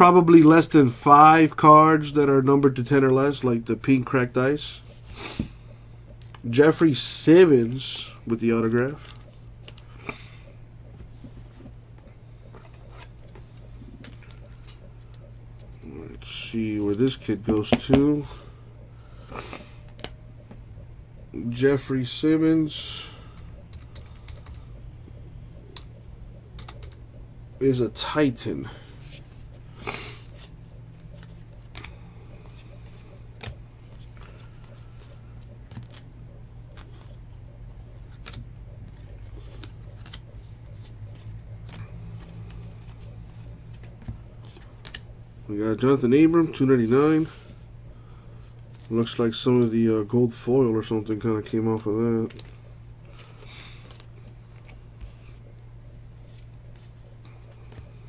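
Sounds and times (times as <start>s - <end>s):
steady low hum: 0.0s - 58.0s
plastic card sleeve rustling: 30.2s - 45.2s, 48.6s - 58.0s.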